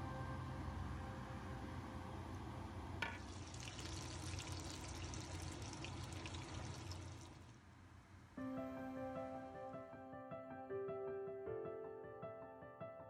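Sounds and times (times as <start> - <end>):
background music: 0.0 - 2.4, 8.4 - 13.0.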